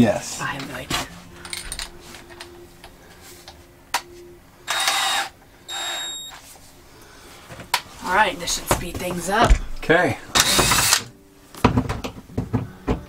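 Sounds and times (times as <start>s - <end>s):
power drill whine: 4.7s - 6.4s.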